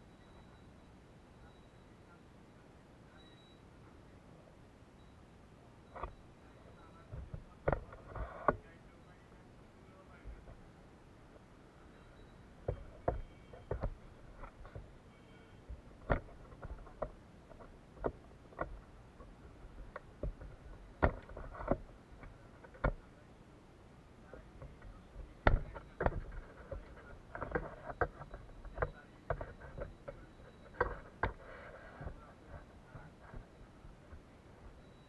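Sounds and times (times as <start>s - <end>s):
people moving about: 5.9s - 23.4s, 24.1s - 35.0s.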